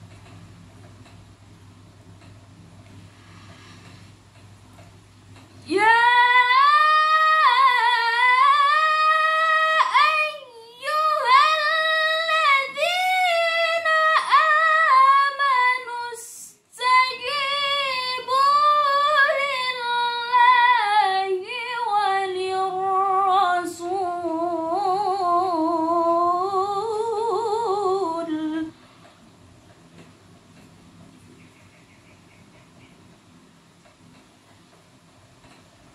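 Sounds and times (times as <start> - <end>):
woman chanting recitation: 5.7 - 28.7.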